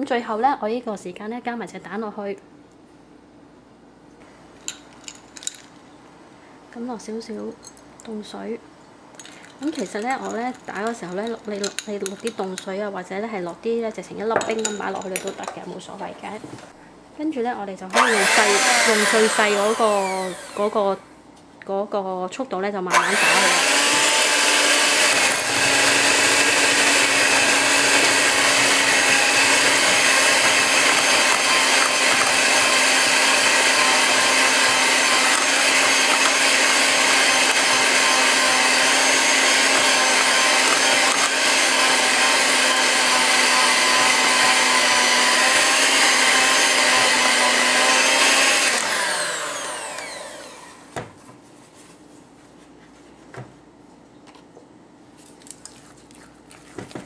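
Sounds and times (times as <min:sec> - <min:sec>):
electric hand mixer whining: 0:18.0 - 0:20.9, 0:22.9 - 0:50.9.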